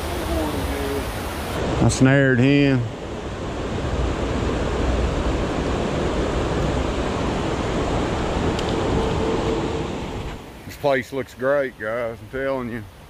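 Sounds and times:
creek running water: 0:00.0 - 0:13.0.

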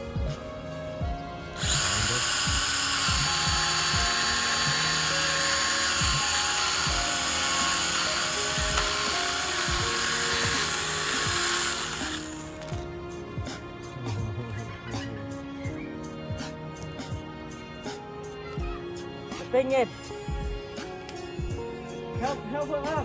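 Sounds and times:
pruning saw whining: 0:01.5 - 0:12.8.

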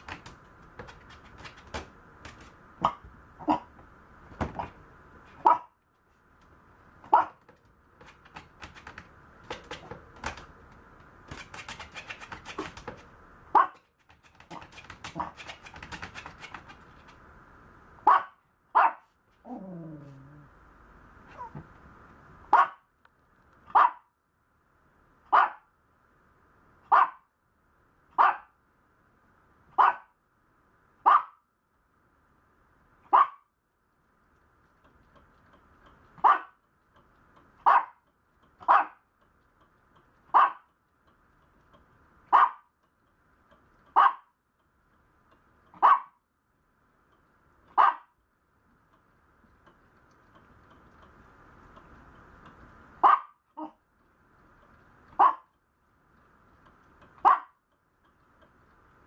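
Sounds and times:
small dog barking: 0:02.8 - 0:03.8, 0:04.4 - 0:05.8, 0:07.0 - 0:07.5, 0:13.5 - 0:13.9, 0:18.0 - 0:20.4, 0:22.5 - 0:22.9, 0:23.7 - 0:24.1, 0:25.3 - 0:25.7, 0:26.9 - 0:27.3, 0:28.2 - 0:28.6, 0:29.7 - 0:30.2, 0:31.0 - 0:31.4, 0:33.1 - 0:33.5, 0:36.2 - 0:36.6, 0:37.6 - 0:38.0, 0:38.6 - 0:39.0, 0:40.3 - 0:40.7, 0:42.3 - 0:42.7, 0:43.9 - 0:44.4, 0:45.7 - 0:46.2, 0:47.7 - 0:48.2, 0:53.0 - 0:53.8, 0:55.1 - 0:55.5, 0:57.2 - 0:57.6.

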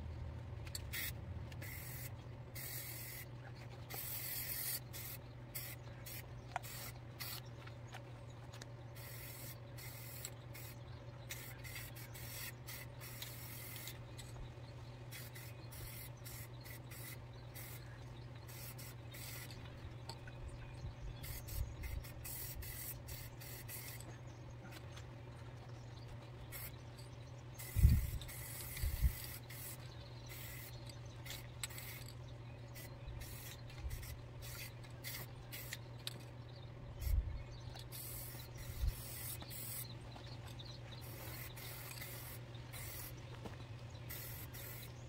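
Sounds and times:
steady low hum: 0:00.0 - 0:45.0
aerosol spray can hissing: 0:00.9 - 0:03.2, 0:04.0 - 0:07.4, 0:21.3 - 0:24.0, 0:41.0 - 0:43.1, 0:44.1 - 0:44.9.

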